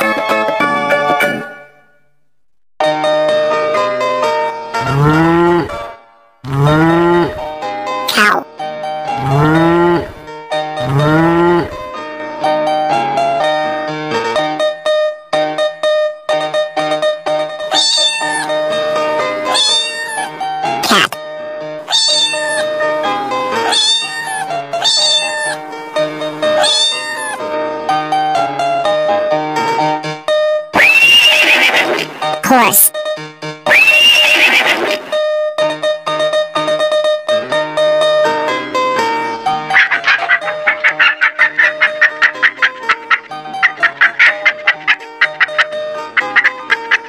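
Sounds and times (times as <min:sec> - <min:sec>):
background music: 0:00.0 - 0:02.1, 0:34.3 - 0:47.0
cow mooing: 0:04.8 - 0:05.8, 0:06.5 - 0:07.4, 0:09.2 - 0:10.2, 0:10.8 - 0:11.8
cat meowing: 0:17.7 - 0:18.6, 0:19.4 - 0:21.1, 0:21.9 - 0:22.8, 0:23.6 - 0:25.6, 0:26.4 - 0:27.4.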